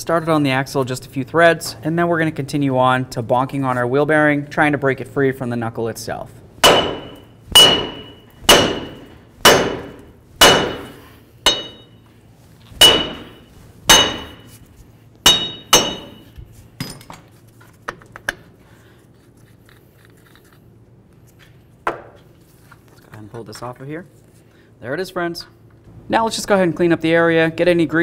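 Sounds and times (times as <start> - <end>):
hammer striking metal: 6.6 - 12.0, 12.8 - 14.6, 15.2 - 16.4.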